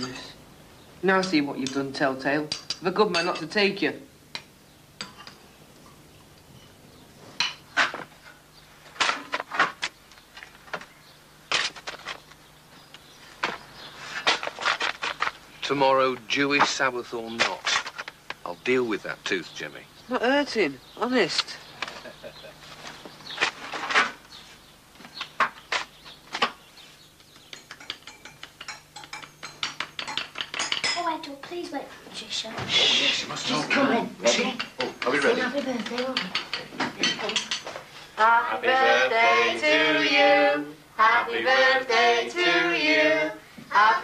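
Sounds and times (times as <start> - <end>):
crockery and cutlery clinking: 2.5 - 3.6, 27.5 - 31.2, 33.6 - 37.9.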